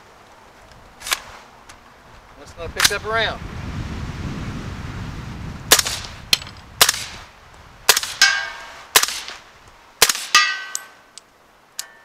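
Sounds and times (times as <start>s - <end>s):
suppressed gunshots: 6.8s - 7.2s, 7.9s - 9.4s, 10.0s - 10.5s
ringing metallic clang: 8.2s - 9.4s, 10.3s - 11.1s.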